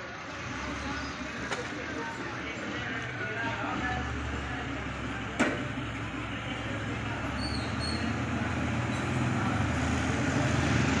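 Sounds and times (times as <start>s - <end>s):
vehicle engine humming: 0.0s - 11.0s
motorcycle riding up: 5.1s - 11.0s.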